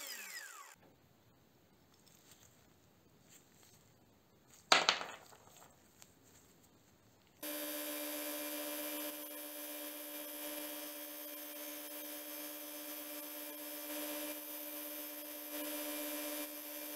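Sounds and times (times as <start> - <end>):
belt grinder motor running: 0.0 - 0.8, 7.4 - 16.9.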